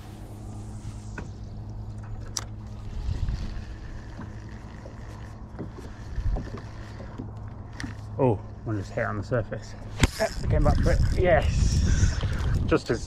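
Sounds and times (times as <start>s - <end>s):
boat motor humming: 0.0s - 13.0s.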